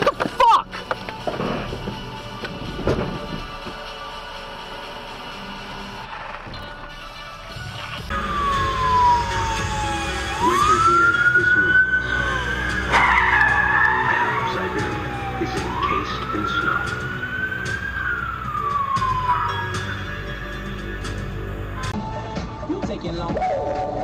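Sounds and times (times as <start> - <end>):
traffic noise: 0.0 - 22.8
emergency siren wailing: 7.3 - 21.9.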